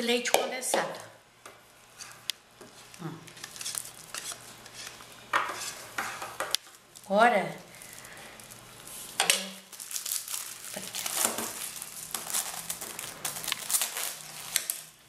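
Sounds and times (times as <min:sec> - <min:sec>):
plastic wrapper crinkling: 0:02.8 - 0:05.0, 0:06.6 - 0:15.0.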